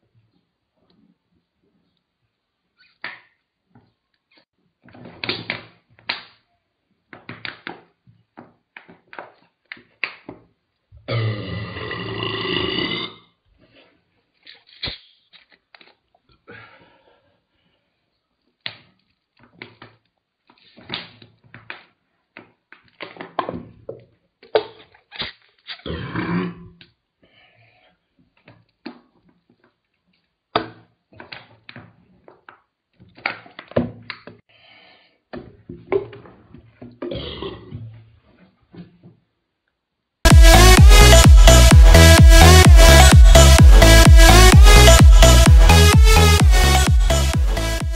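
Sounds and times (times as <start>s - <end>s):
man burping loudly: 11.0s - 13.4s, 37.0s - 37.8s
gulping: 37.0s - 37.8s.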